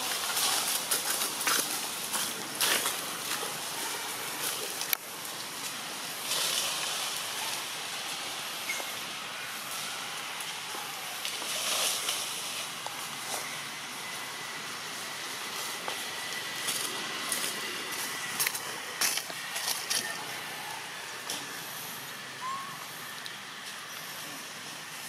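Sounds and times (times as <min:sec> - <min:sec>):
forest background hiss: 0:00.0 - 0:25.0.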